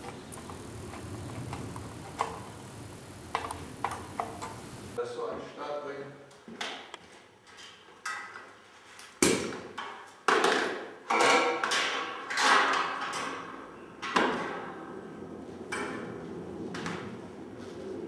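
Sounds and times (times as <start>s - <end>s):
compressed air blasts: 0.0s - 5.0s.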